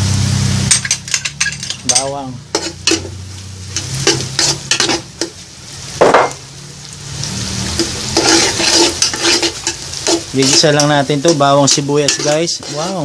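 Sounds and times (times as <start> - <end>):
garlic and onion sizzling in butter: 0.0 - 13.0
spatula scraping a pot: 2.5 - 3.1, 3.8 - 5.0, 7.8 - 13.0.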